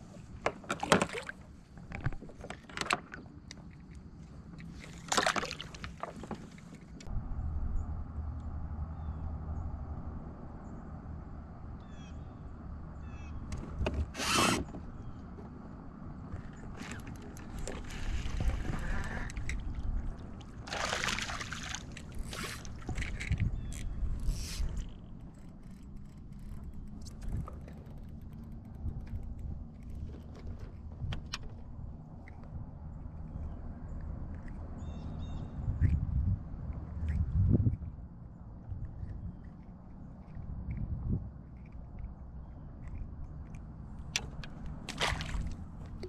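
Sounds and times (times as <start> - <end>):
low steady hum: 0.0 - 46.0
tackle and kayak clicks and creaks: 0.4 - 7.1, 16.2 - 20.5, 22.0 - 46.0
steady low rumble: 7.0 - 13.5, 17.3 - 46.0
faint bird chirps: 11.8 - 13.4.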